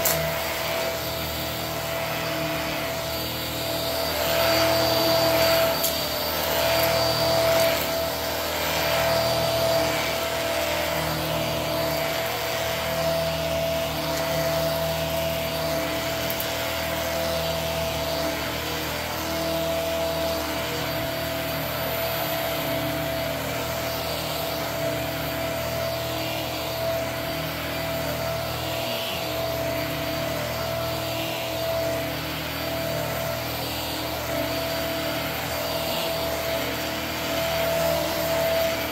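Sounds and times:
vacuum cleaner whining: 0.0s - 38.9s
vacuum head rubbing on rug: 0.0s - 38.9s.

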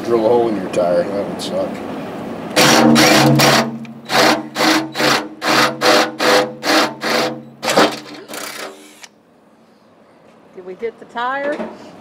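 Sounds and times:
drill bit grinding metal: 2.6s - 9.0s.

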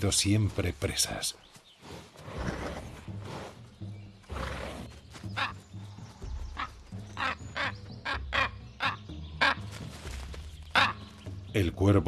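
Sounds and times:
low background music: 0.0s - 12.0s
raven calling: 5.4s - 5.6s, 6.5s - 9.6s, 10.7s - 11.1s.

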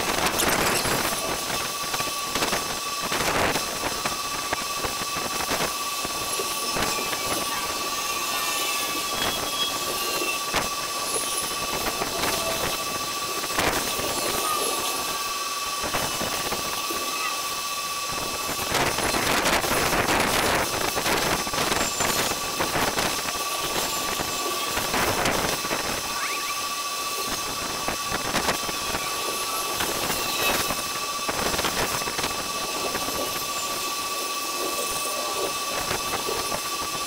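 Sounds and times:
noisy wash: 0.0s - 37.0s
thin high tone: 6.2s - 15.5s, 16.4s - 17.6s, 25.9s - 27.5s.

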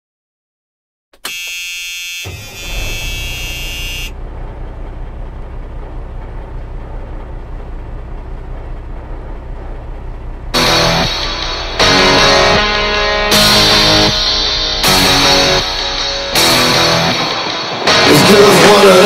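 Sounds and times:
high buzzing tone: 1.2s - 4.2s
diesel truck engines idling: 2.1s - 19.0s.

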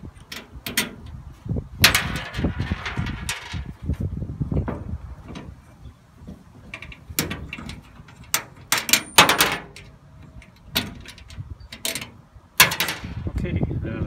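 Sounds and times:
metal clinks and knocks: 1.8s - 3.8s, 6.6s - 13.3s.

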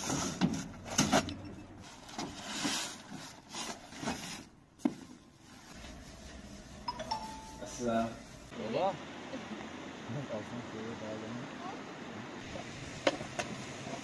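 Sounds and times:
objects rubbing and scraping: 0.0s - 8.5s.

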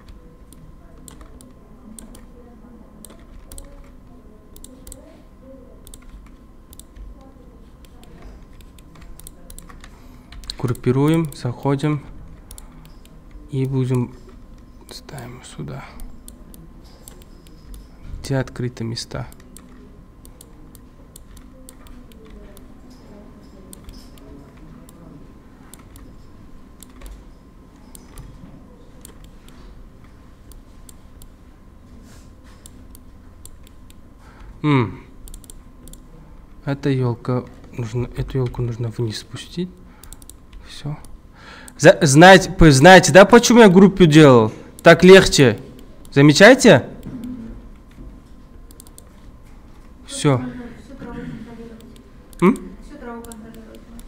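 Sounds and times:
computer mouse clicks: 0.0s - 2.3s, 3.0s - 5.2s, 5.8s - 11.5s, 12.3s - 15.3s, 16.0s - 18.0s, 19.2s - 25.0s, 25.7s - 26.2s, 26.8s - 31.4s, 32.5s - 34.5s, 35.2s - 36.1s, 40.0s - 41.8s, 48.7s - 49.9s, 51.8s - 54.0s
keyboard clicks: 0.0s - 2.3s, 3.0s - 5.1s, 5.8s - 11.5s, 12.3s - 15.3s, 16.0s - 17.9s, 19.2s - 25.0s, 25.7s - 26.2s, 26.8s - 28.4s, 29.0s - 31.4s, 35.2s - 36.1s, 40.0s - 41.8s, 48.7s - 49.3s
low steady hum: 0.0s - 54.0s.

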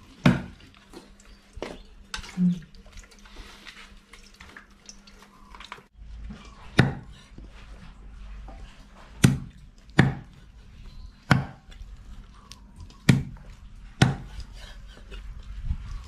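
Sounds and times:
wet coconut squelching: 0.0s - 16.0s
liquid dripping into a metal pot: 0.2s - 5.9s
cleaver chopping into wooden block: 6.8s - 7.1s, 9.2s - 10.3s, 11.3s - 11.7s, 13.0s - 13.4s, 14.0s - 14.3s.

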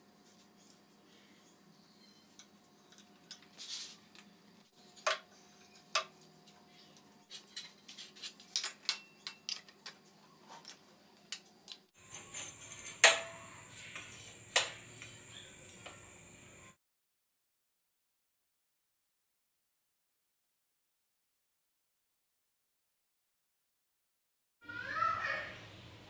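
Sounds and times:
metal utensils clicking on rack: 12.0s - 16.0s
steady hiss: 12.0s - 16.8s.

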